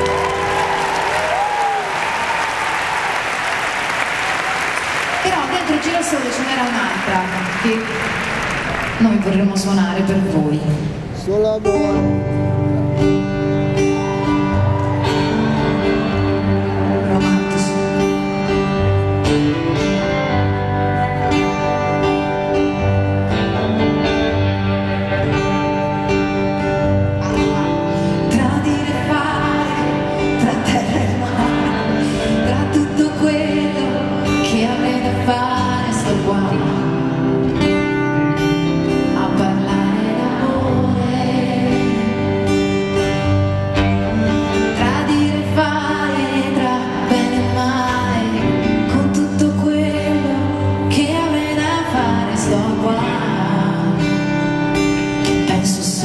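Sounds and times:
acoustic guitar: 0:00.0 - 0:56.0
electric guitar: 0:00.0 - 0:56.0
woman singing: 0:15.3 - 0:18.7, 0:27.3 - 0:38.0, 0:38.7 - 0:43.0, 0:44.1 - 0:56.0.

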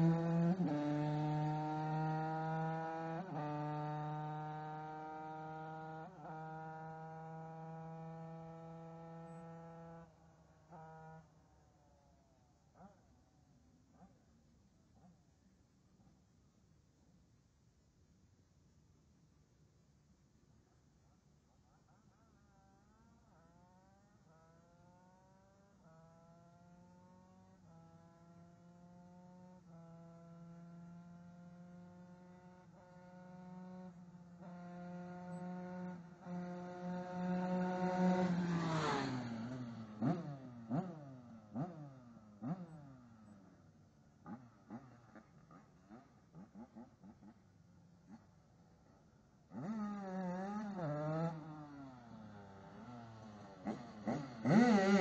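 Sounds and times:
distant moped engine accelerating: 0:00.0 - 0:11.4, 0:22.8 - 0:55.0.

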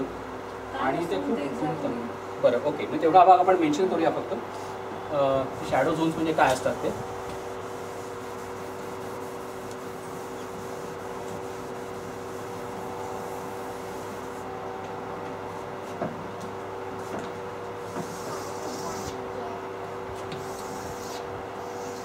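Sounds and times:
steady machine hum: 0:00.0 - 0:22.0
cloth rubbing chalkboard: 0:05.6 - 0:14.5, 0:17.8 - 0:19.2, 0:20.2 - 0:22.0.

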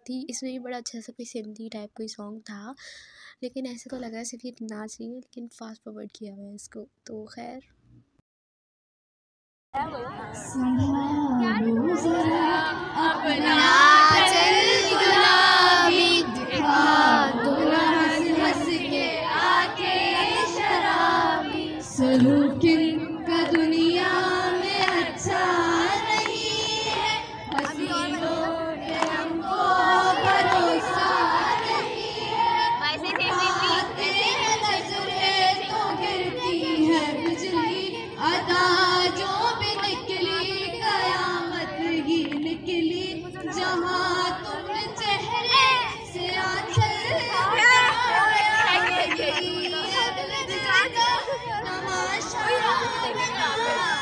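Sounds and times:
woman's voice through loudspeakers: 0:10.4 - 0:12.4
girl singing into a microphone: 0:10.4 - 0:54.0.

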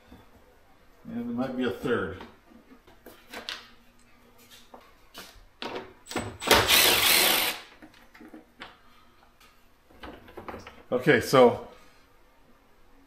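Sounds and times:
cordless power driver running: 0:06.4 - 0:07.7.

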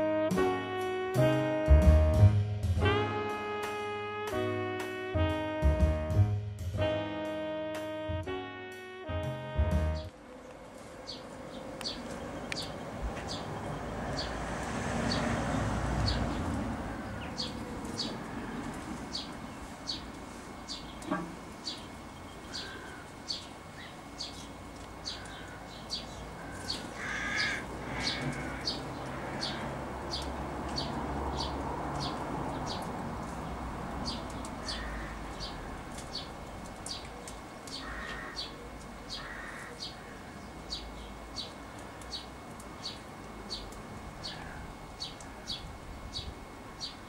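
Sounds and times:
sparrow chirping: 0:11.1 - 0:14.4, 0:17.1 - 0:18.2, 0:19.1 - 0:37.1, 0:37.7 - 0:47.0
harsh lower bird calls: 0:16.9 - 0:32.9, 0:34.1 - 0:36.3, 0:37.7 - 0:47.0.

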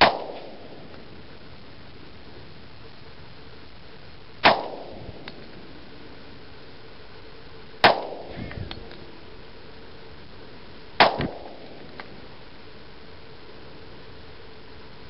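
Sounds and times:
pistol shots with echo: 0:00.0 - 0:00.7, 0:04.4 - 0:05.0, 0:07.8 - 0:08.4, 0:11.0 - 0:11.8.

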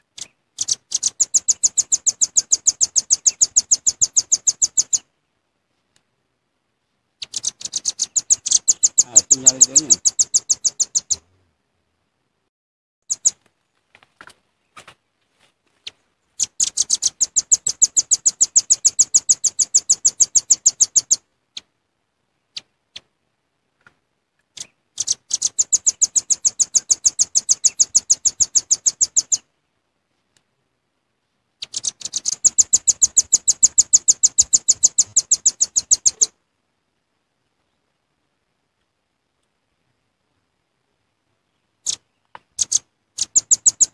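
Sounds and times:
bird chips: 0:00.1 - 0:05.0, 0:07.2 - 0:11.2, 0:15.8 - 0:21.2, 0:24.5 - 0:29.4, 0:31.6 - 0:36.3, 0:41.8 - 0:43.9.

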